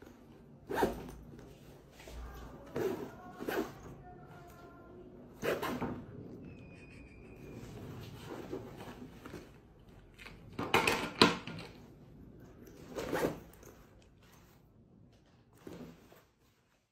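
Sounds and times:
backpack zipper being pulled: 0.6s - 1.2s, 2.7s - 3.9s, 5.3s - 5.9s, 12.9s - 13.7s.

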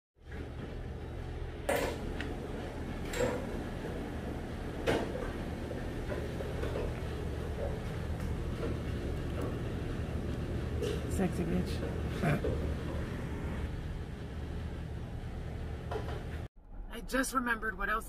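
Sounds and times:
steady low hum: 0.2s - 18.0s.

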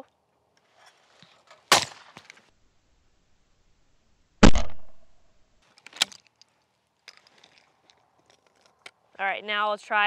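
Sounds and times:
shotgun shots: 1.7s - 2.2s, 4.4s - 5.1s.

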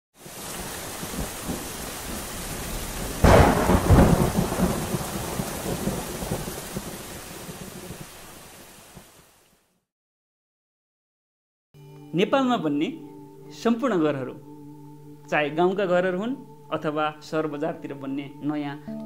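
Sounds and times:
steady rain: 0.2s - 9.6s
thunderclap rumbling: 0.5s - 8.1s.

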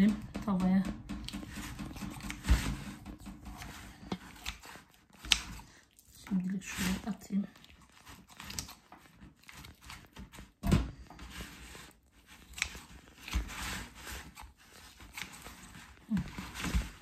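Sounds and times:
shears snipping through chicken: 1.2s - 5.6s.

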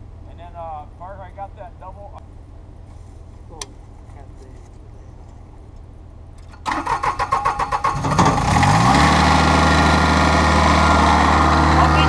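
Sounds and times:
mower engine starting and running: 6.4s - 12.0s.

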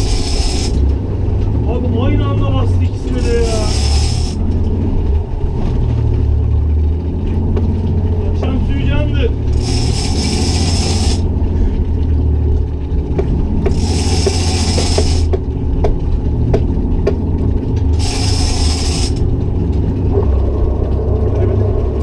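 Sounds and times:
fishing reel ratcheting clicks: 0.0s - 0.8s, 3.3s - 4.4s, 9.6s - 11.3s, 13.7s - 15.3s, 18.0s - 19.2s
rushing hiss: 0.0s - 0.8s, 3.3s - 4.4s, 9.6s - 11.3s, 13.7s - 15.3s, 18.0s - 19.2s
boat engine low rumble: 0.0s - 22.0s.

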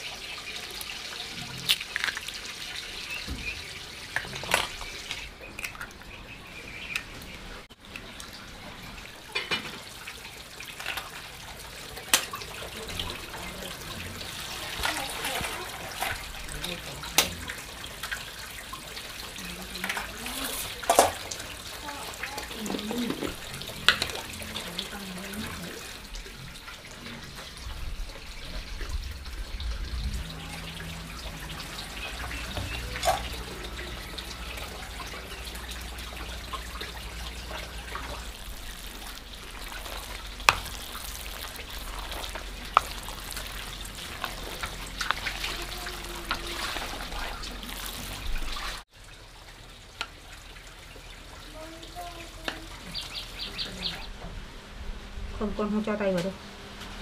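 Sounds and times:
greens tossed with chopsticks: 38.0s - 48.1s.

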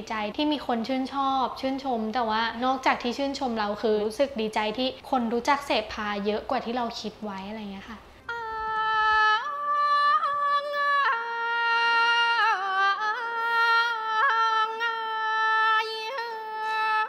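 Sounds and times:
woman chanting recitation: 0.0s - 17.0s.

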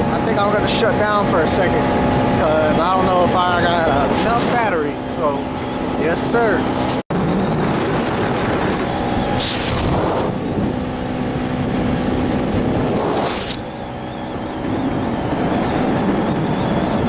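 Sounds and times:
outboard motor running: 0.0s - 17.0s
wind rush over microphone: 0.0s - 17.0s
hissing gusts: 8.4s - 16.5s.

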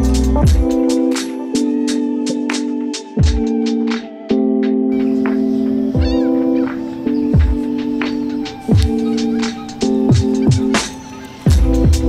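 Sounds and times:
held synth chords: 0.0s - 12.0s
hi-hats: 0.0s - 12.0s
deep kick drums: 0.4s - 0.8s, 7.4s - 7.6s, 11.5s - 12.0s.

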